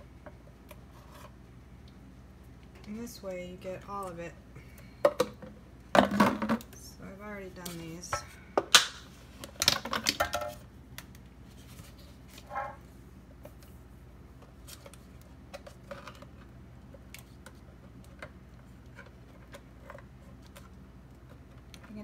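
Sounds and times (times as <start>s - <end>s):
plastic bottles clicking and knocking: 5.0s - 6.8s.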